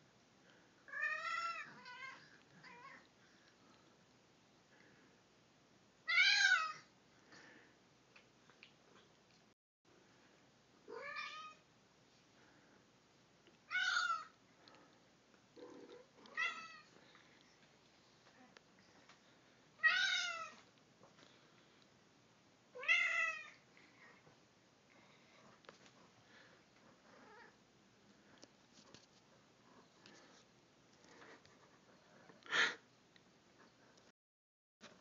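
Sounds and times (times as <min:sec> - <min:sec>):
cat meowing: 0:10.9 - 0:11.6, 0:13.7 - 0:14.3, 0:16.3 - 0:16.9, 0:19.8 - 0:20.6.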